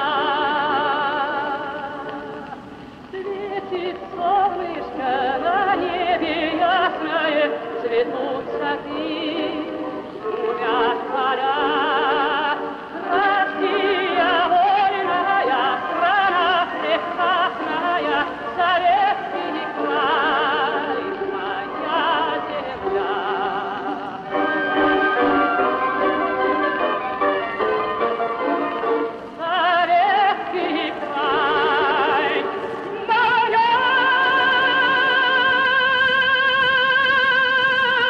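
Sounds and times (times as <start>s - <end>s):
operatic singing: 0.0s - 38.0s
orchestral music: 6.4s - 35.8s.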